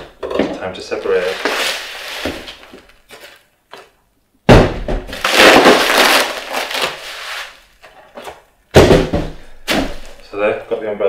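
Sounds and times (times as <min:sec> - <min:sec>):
packaging rustling and scraping: 0:00.8 - 0:03.9, 0:05.1 - 0:08.4
sudden thump: 0:04.5 - 0:05.2, 0:08.7 - 0:10.1.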